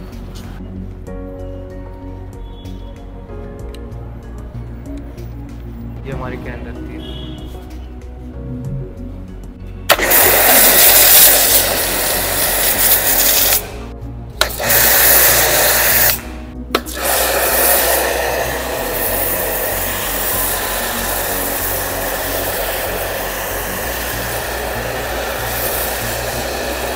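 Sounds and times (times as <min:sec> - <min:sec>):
pressure washer spraying hiss: 0:09.9 - 0:26.9.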